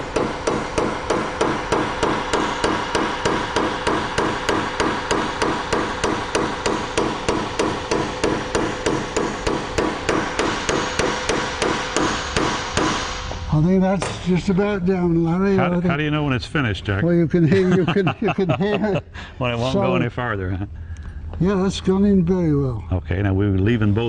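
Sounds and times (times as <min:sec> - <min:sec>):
hammer tapping on metal: 0:00.0 - 0:13.1.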